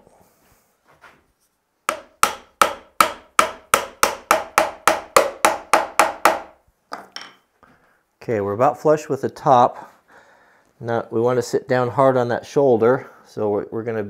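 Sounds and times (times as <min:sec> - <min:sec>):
small hammer tapping wedge: 0:01.9 - 0:07.4.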